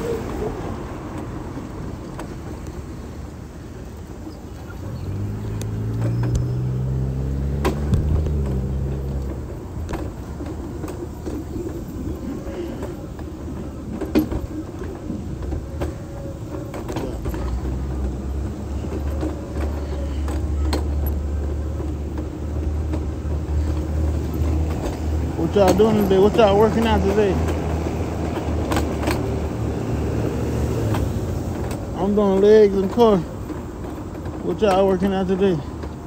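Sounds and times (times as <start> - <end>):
passing car engine hum: 4.5 - 12.2, 16.4 - 32.2
sharp clicks and knocks: 5.1 - 11.8, 12.8 - 29.7.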